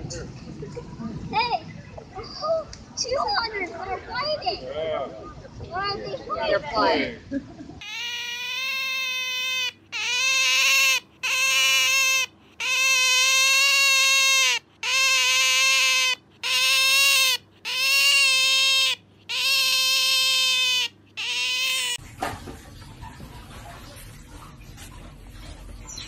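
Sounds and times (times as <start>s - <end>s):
otter whining: 7.8s - 22.0s.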